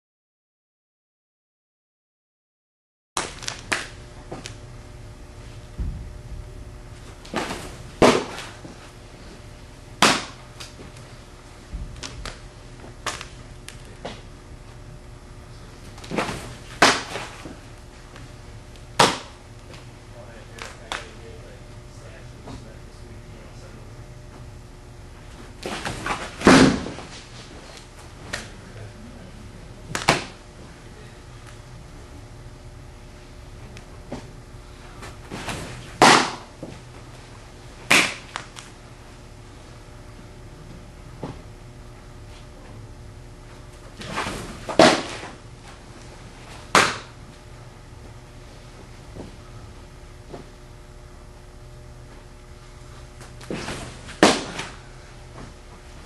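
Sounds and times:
baseball smacking backstop: 7.2 - 8.7, 10.0 - 10.7, 16.0 - 17.4, 35.3 - 36.5, 37.9 - 38.4, 44.0 - 45.3, 46.7 - 47.2, 53.2 - 54.8
ball smacking into glove: 53.4 - 54.8.

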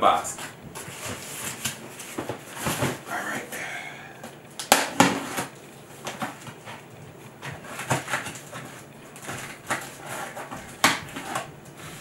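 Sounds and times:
cardboard scratching and rustling: 7.4 - 12.0.

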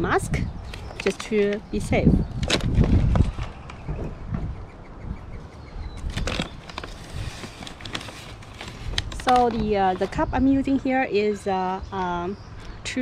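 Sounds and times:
paper bag rustling and crinkling: 0.6 - 3.8, 6.0 - 10.4.

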